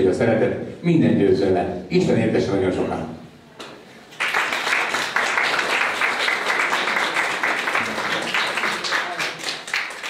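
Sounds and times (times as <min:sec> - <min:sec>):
people applauding: 0:04.1 - 0:10.0.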